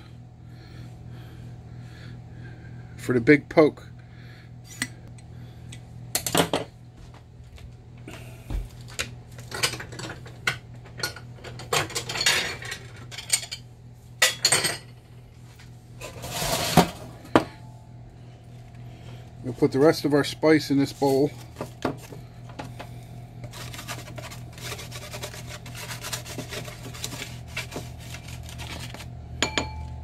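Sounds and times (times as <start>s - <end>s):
roasting pan scraping on stove: 16.0s - 17.2s, 23.4s - 29.0s.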